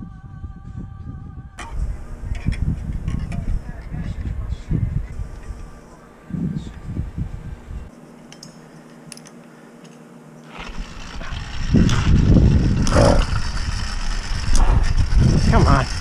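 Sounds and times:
engine rumbling unevenly: 10.5 - 16.0.

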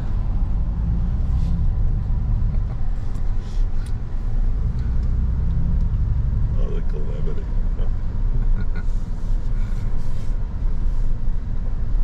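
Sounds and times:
low road and drivetrain rumble: 0.0 - 12.0.

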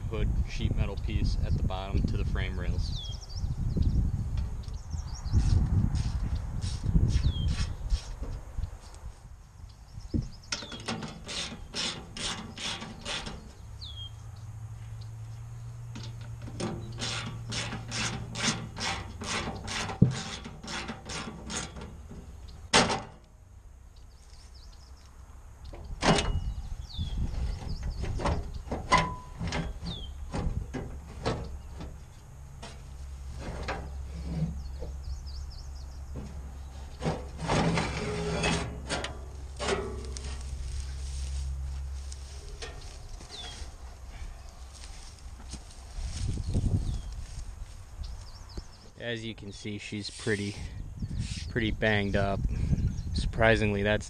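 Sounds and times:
wind rumbling on microphone: 0.0 - 11.1, 25.7 - 32.1, 39.8 - 49.0, 50.2 - 54.0
sharp metal knocks: 15.9 - 23.2, 25.8 - 26.5.

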